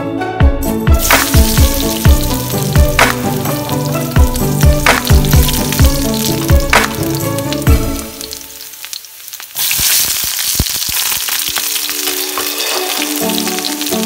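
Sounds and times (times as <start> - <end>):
background music with beat: 0.0 - 8.3
onion and garlic sizzling in oil: 1.0 - 14.0.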